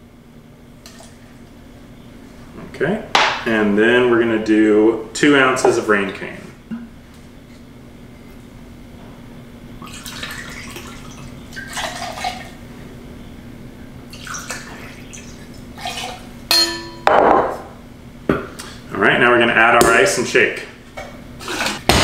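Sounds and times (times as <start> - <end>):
liquid pouring and splashing: 9.8 - 12.6, 14.1 - 16.4
metal clink: 16.5 - 17.1.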